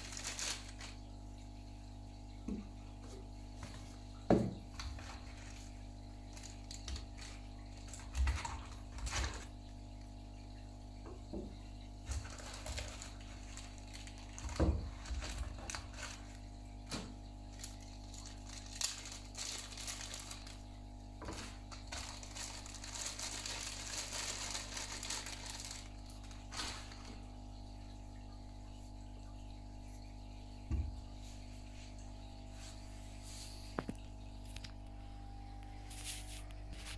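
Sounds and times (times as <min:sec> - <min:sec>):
plastic packaging crinkling: 0:00.0 - 0:01.2, 0:12.1 - 0:27.3
low hum: 0:26.6 - 0:36.9.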